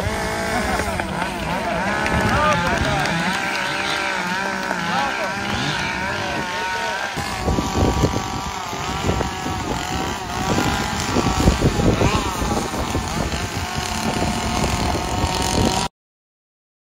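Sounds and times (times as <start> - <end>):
chainsaw engines revving: 0.0 - 15.9
wind rumbling on microphone: 0.0 - 15.9.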